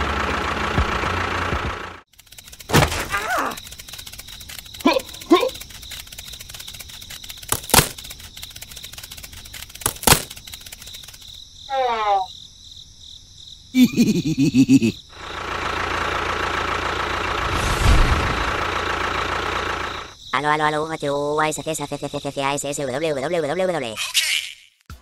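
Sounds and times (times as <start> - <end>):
sharp clicks: 2.1 - 11.4
small motor buzzing: 2.1 - 11.4.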